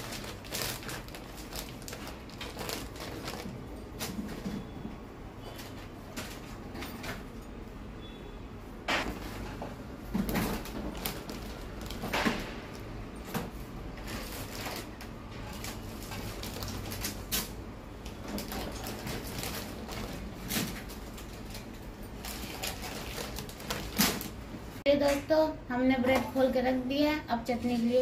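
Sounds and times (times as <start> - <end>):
plastic bag crinkling: 0.0 - 4.4, 10.2 - 12.2, 14.0 - 17.3, 18.1 - 24.5.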